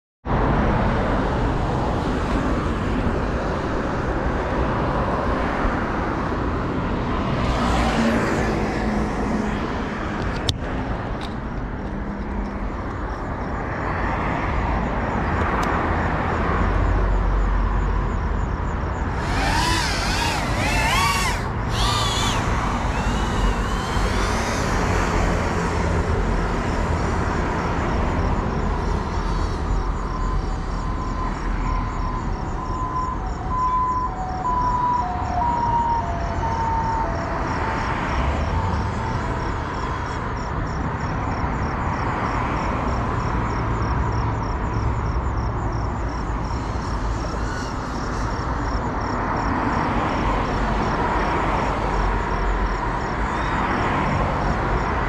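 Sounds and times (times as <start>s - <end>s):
road traffic: 0.2s - 55.0s
wavering siren wail: 19.1s - 25.0s, 33.1s - 38.4s.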